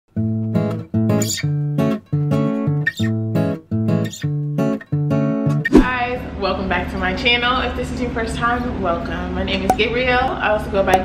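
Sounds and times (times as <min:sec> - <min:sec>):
guitar strumming chords: 0:00.2 - 0:06.3.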